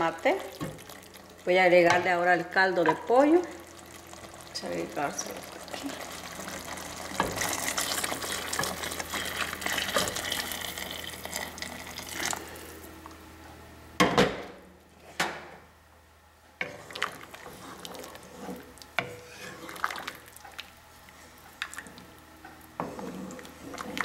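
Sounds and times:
broth pouring into a pot: 0:03.5 - 0:12.9, 0:16.9 - 0:20.4
wooden spoon scraping a pot: 0:05.2 - 0:12.4, 0:16.6 - 0:20.1, 0:22.8 - 0:24.0.

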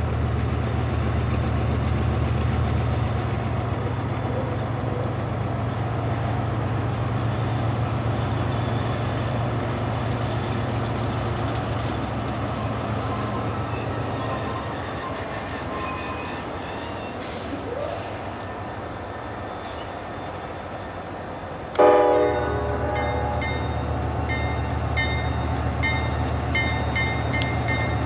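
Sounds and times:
diesel locomotive rumble: 0:00.0 - 0:28.0.

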